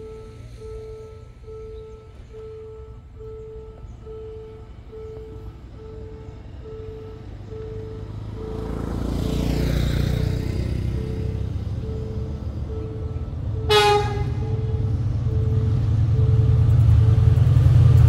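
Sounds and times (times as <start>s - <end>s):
short repeating beep: 0.0s - 8.8s, 10.9s - 16.7s
diesel locomotive engine rumble: 0.0s - 18.0s
locomotive horn blast: 13.0s - 16.7s.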